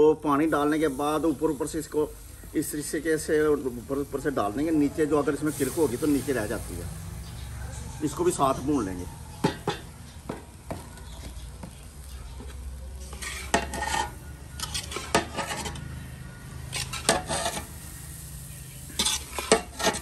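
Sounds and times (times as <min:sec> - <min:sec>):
semolina roasting in ghee: 0:00.0 - 0:20.0
metal ladle scraping a pan: 0:12.4 - 0:20.0
metal clinking on pan: 0:13.1 - 0:15.9.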